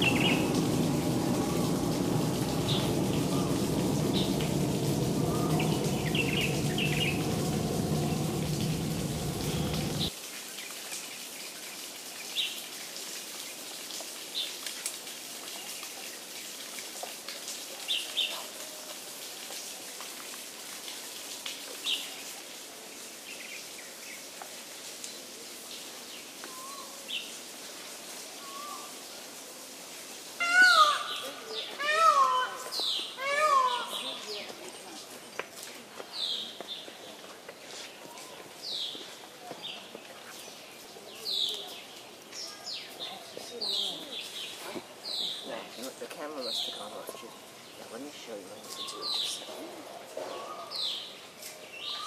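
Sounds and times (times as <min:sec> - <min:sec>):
small birds chirping: 0:00.0 - 0:10.1
steady low din: 0:00.0 - 0:10.1.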